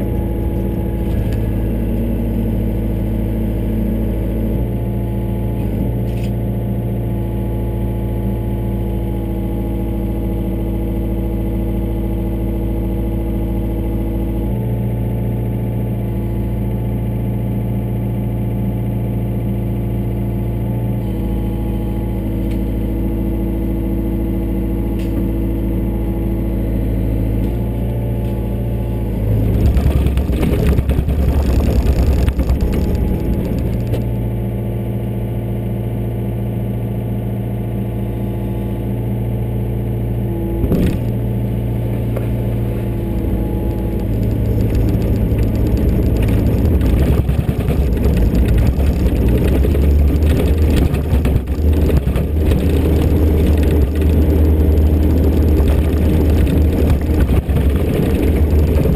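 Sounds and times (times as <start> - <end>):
excavator diesel engine running: 0.0 - 58.9
clattering rumble: 29.2 - 34.2, 41.9 - 58.9.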